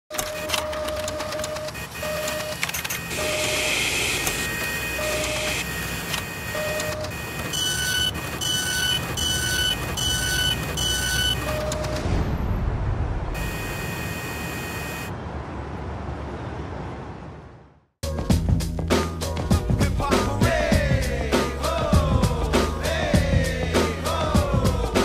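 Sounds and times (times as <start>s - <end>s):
mechanical clicks: 0.1s - 3.6s
short electronic beeps: 0.2s - 12.0s, 13.4s - 15.1s
machine whirring: 0.4s - 12.0s
higher beeps: 1.5s - 12.0s.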